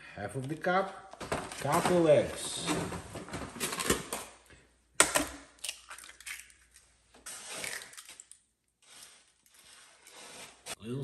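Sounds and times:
egg shell cracking: 0:05.0 - 0:06.9, 0:07.6 - 0:08.5.

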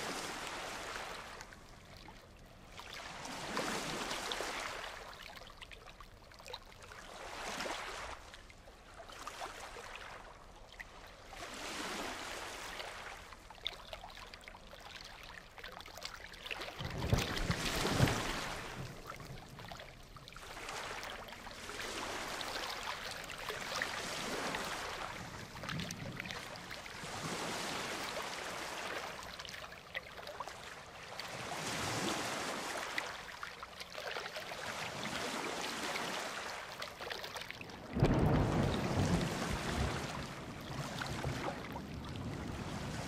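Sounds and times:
ocean surf breaking: 0:37.8 - 0:43.0
deep rumble of thunder: 0:37.9 - 0:40.4.

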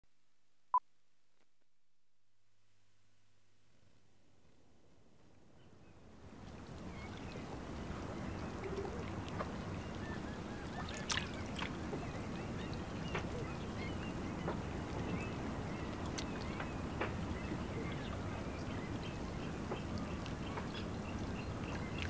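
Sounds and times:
water washing: 0:10.8 - 0:11.9.

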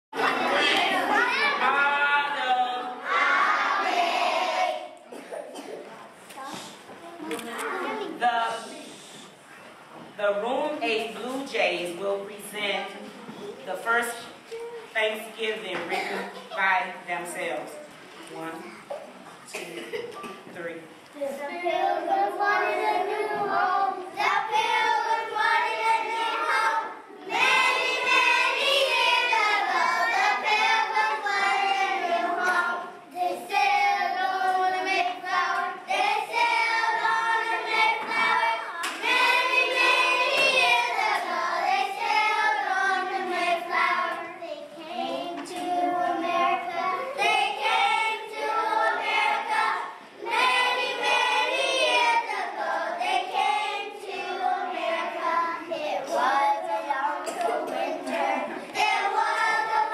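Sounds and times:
children singing: 0:00.2 - 0:05.3, 0:21.5 - 0:59.9.

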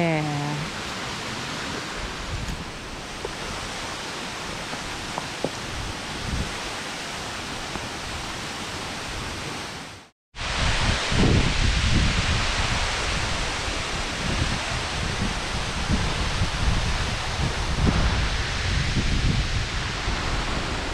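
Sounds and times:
waterfall rushing hiss: 0:00.0 - 0:20.9
wind buffeting microphone: 0:00.6 - 0:06.7, 0:10.4 - 0:20.9.

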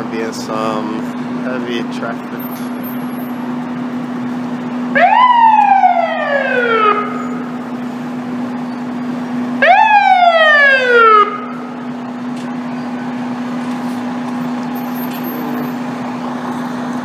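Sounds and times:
steady low hum: 0:00.0 - 0:17.0
fire engine siren: 0:04.2 - 0:17.0.

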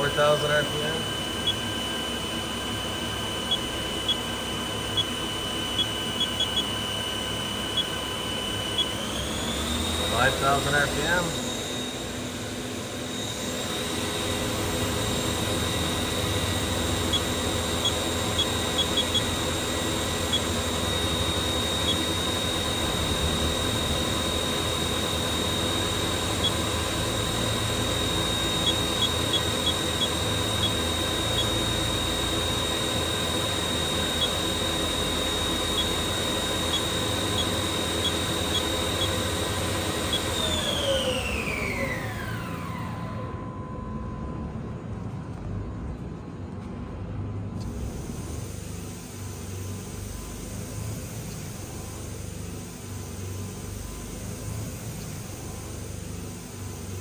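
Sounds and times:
machine spindle whine: 0:00.0 - 0:57.0.

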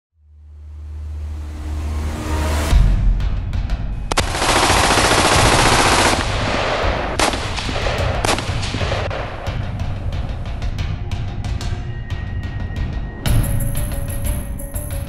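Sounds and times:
automatic gunfire: 0:04.1 - 0:09.1.

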